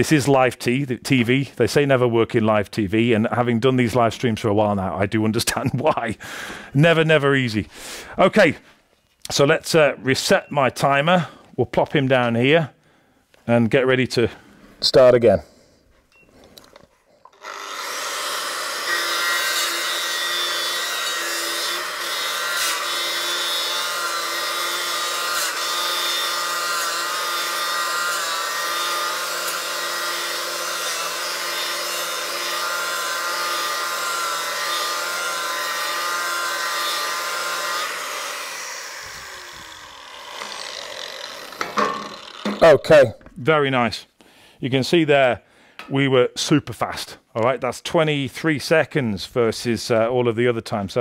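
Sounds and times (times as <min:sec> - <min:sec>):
angle grinder grinding metal: 0:17.3 - 0:43.2.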